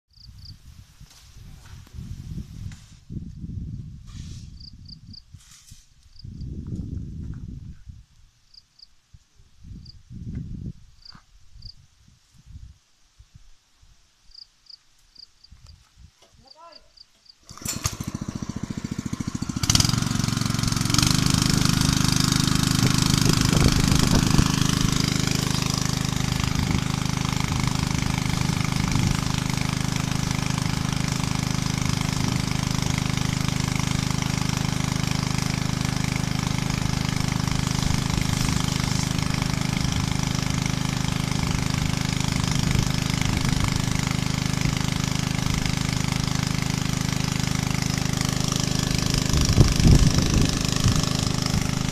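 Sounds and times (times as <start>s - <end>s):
small engine running a spray pump: 17.4s - 51.9s.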